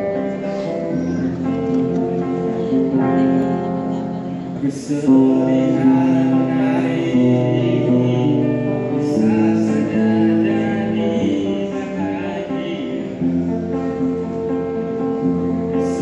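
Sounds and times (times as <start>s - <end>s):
acoustic guitar: 0.0s - 16.0s.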